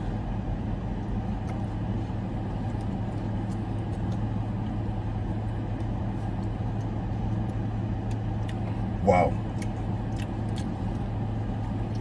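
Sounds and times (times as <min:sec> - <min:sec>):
car engine idling: 0:00.0 - 0:12.0
faint eating clicks: 0:05.8 - 0:11.1.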